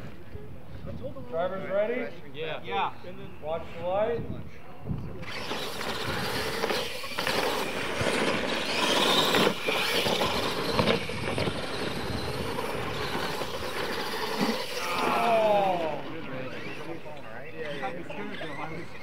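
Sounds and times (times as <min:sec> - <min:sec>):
toy truck motors running: 0:05.2 - 0:19.0
tyres churning dirt: 0:05.2 - 0:19.0.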